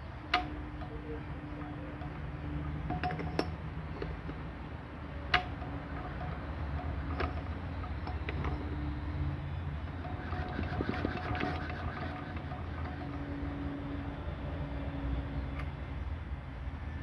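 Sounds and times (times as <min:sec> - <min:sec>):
metallic clicks and clinks: 0:01.6 - 0:04.1.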